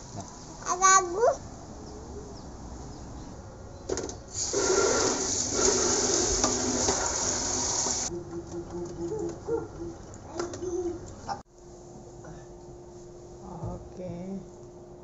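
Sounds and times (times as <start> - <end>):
tap water spraying into sink: 4.3 - 8.1.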